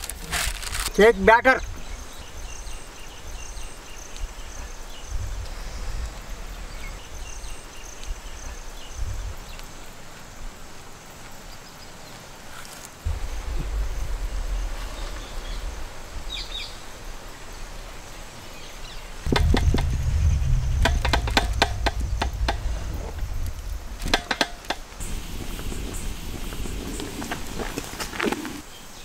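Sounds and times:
wind rumble on microphone: 0:01.6 - 0:11.0, 0:13.0 - 0:28.6.

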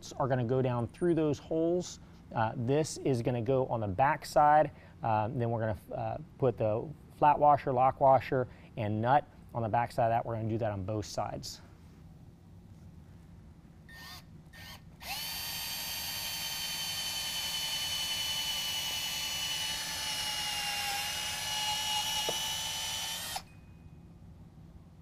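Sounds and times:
cordless drill whining: 0:13.9 - 0:23.6.

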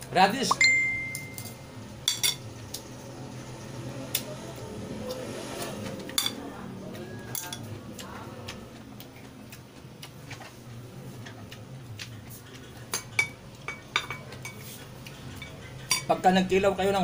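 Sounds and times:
spoon clinking against ceramic bowl: 0:00.5 - 0:02.4, 0:12.9 - 0:14.6.

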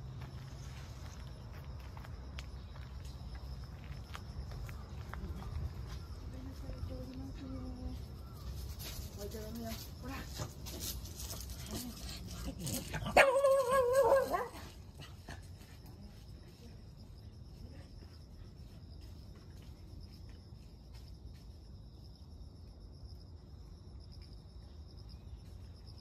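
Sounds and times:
insects chirring: 0:00.0 - 0:26.0
dog howling call: 0:13.1 - 0:14.6.

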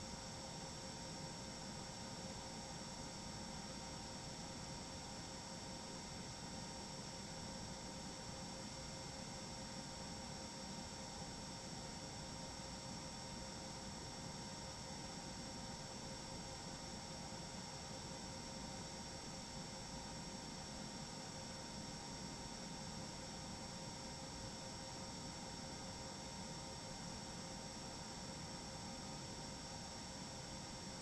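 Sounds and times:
steady hum and hiss: 0:00.0 - 0:31.0.

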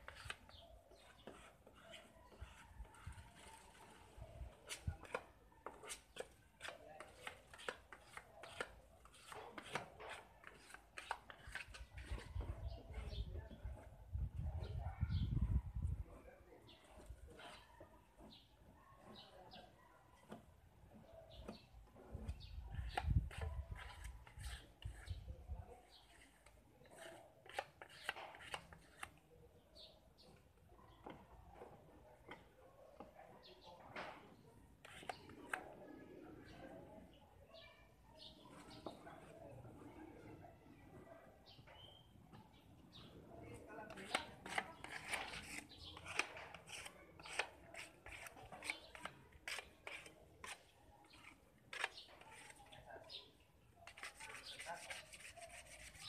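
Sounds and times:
sandpaper scratching: 0:22.8 - 0:25.2, 0:44.4 - 0:50.6, 0:51.2 - 0:52.6, 0:53.9 - 0:56.0.

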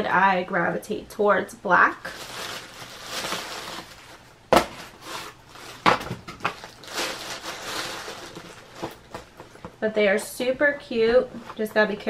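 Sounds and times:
packaging rustling: 0:02.0 - 0:09.8.

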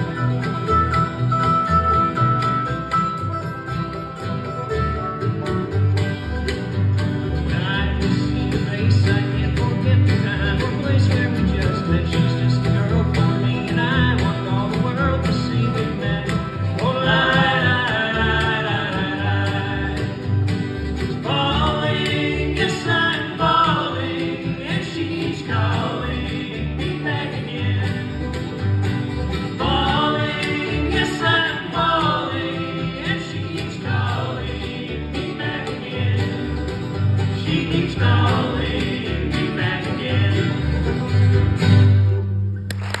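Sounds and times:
banjo: 0:00.0 - 0:42.7
acoustic guitars: 0:00.0 - 0:43.0
mandolin: 0:00.0 - 0:43.0
upright bass: 0:00.0 - 0:43.0
person singing: 0:07.5 - 0:20.3, 0:29.6 - 0:36.6.

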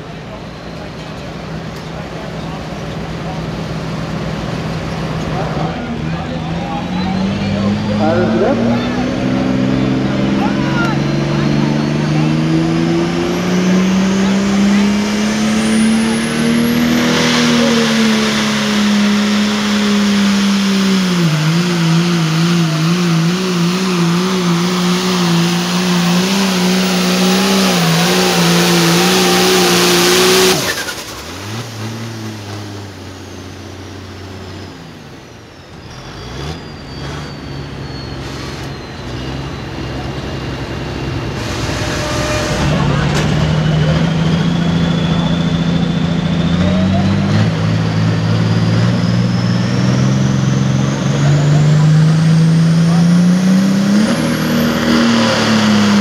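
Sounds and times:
tractor diesel engine running: 0:00.0 - 0:12.8, 0:13.4 - 0:56.0
high whistle winding down: 0:13.6 - 0:22.8, 0:43.4 - 0:51.2.

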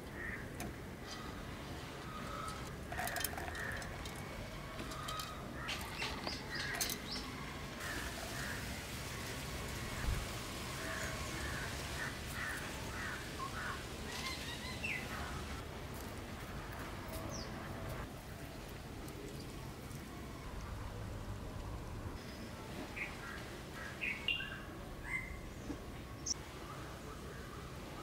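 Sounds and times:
birds chirping: 0:00.0 - 0:08.8, 0:10.7 - 0:15.6, 0:22.2 - 0:28.0
steady background hiss: 0:00.0 - 0:28.0.

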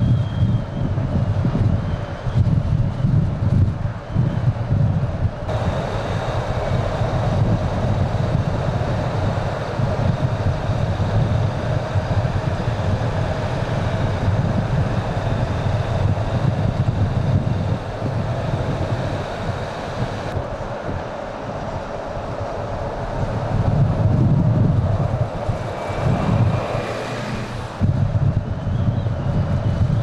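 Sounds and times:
bus engine and tyre noise: 0:00.0 - 0:30.0.

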